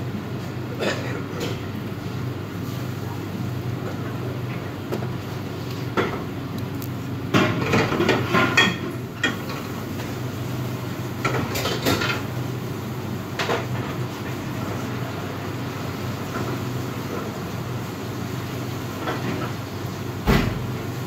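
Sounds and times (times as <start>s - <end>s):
metal trays and pans clattering: 7.3s - 9.6s, 11.2s - 12.2s.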